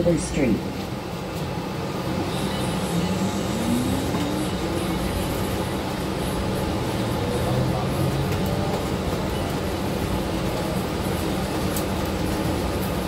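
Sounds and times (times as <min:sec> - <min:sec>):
bus engine and road rumble: 0:00.0 - 0:13.0
faint rising tone: 0:02.2 - 0:08.6.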